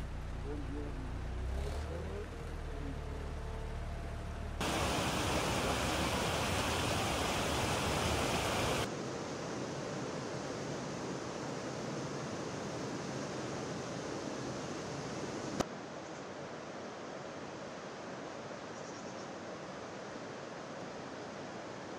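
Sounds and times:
floodwater rushing: 0:04.6 - 0:08.9.

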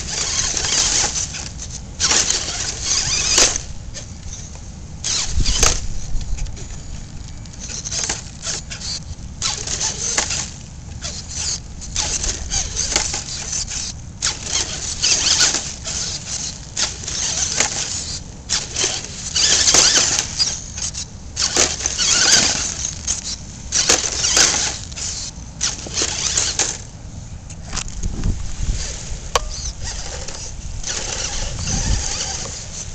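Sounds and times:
toy car electric motor whirring: 0:00.0 - 0:06.8, 0:07.5 - 0:26.9, 0:29.4 - 0:32.9
tyres scrubbing against rock: 0:07.6 - 0:26.9, 0:27.6 - 0:32.9.

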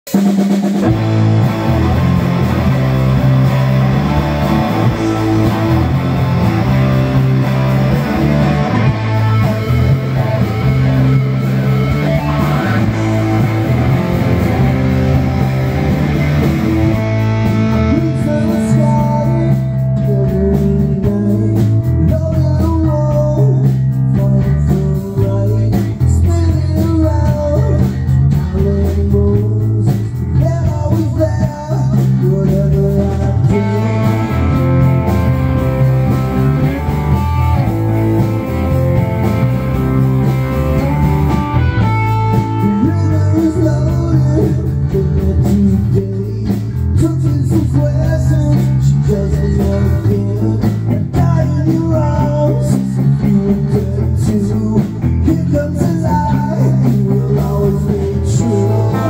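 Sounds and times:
rock band playing live: 0:00.0 - 0:59.0
man singing: 0:08.0 - 0:14.0, 0:16.4 - 0:35.1, 0:42.3 - 0:59.0.

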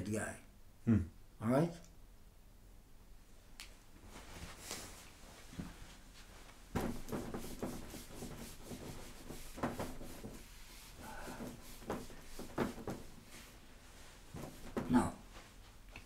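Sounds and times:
scratchy writing on a board: 0:06.8 - 0:13.2.

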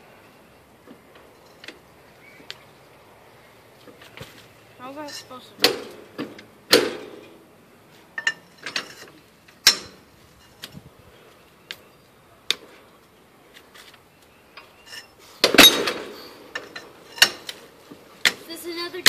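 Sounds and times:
jack clicking and clanking: 0:08.2 - 0:10.8.

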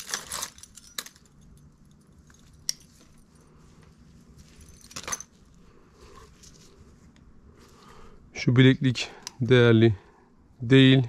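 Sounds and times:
metal necklace clinking: 0:00.0 - 0:05.6.

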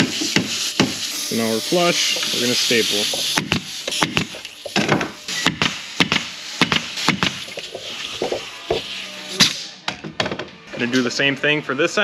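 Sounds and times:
pneumatic stapler firing: 0:03.1 - 0:09.8.

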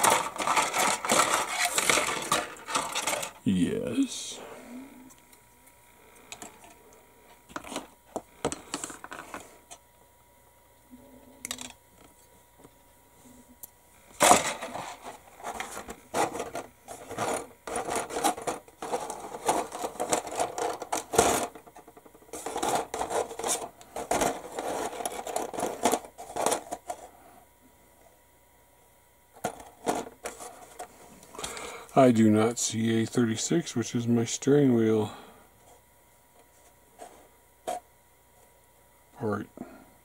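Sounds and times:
plastic sprues clicking and clattering: 0:00.0 - 0:03.4, 0:14.2 - 0:27.0.

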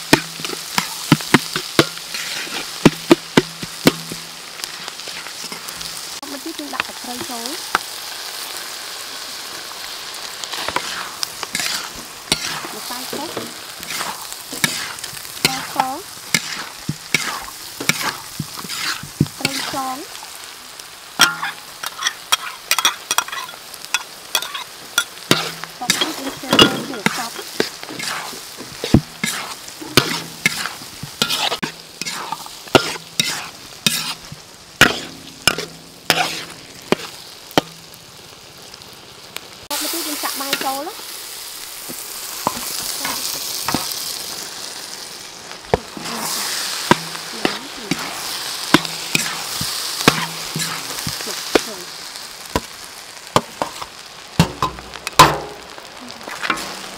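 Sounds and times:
spatula scraping and knocking wok: 0:00.0 - 0:38.0, 0:39.8 - 0:44.4, 0:45.6 - 0:56.9
food sizzling in wok: 0:00.0 - 0:56.9.

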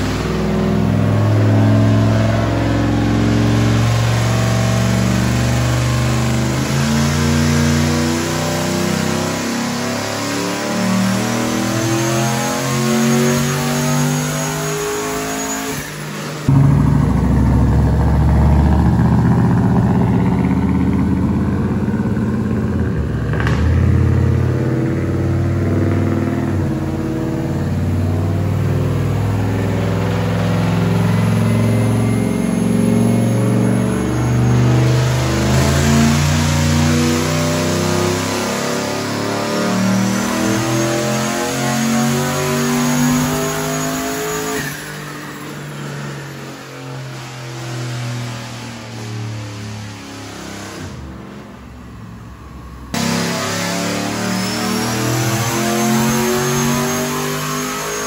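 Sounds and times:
engine running under load: 0:16.5 - 0:27.0
faint turbo whine: 0:16.5 - 0:35.5, 0:48.8 - 0:53.6.

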